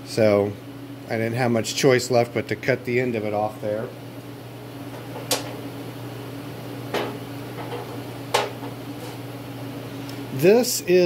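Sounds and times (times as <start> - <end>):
heater humming: 0.0 - 11.0.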